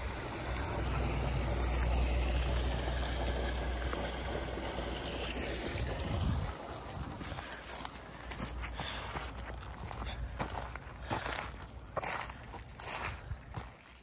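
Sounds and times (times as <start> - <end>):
water splashing from pipe: 0.0 - 8.8.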